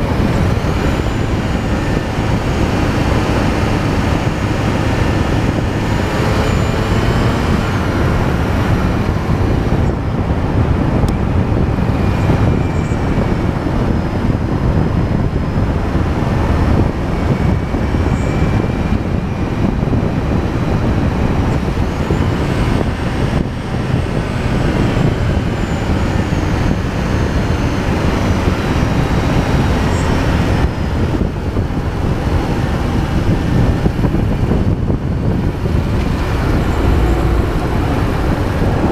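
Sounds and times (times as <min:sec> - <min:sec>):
vehicle road noise on asphalt: 0:00.0 - 0:38.9
wind rush on microphone: 0:00.0 - 0:38.9
faint whine rising and falling: 0:35.4 - 0:38.9.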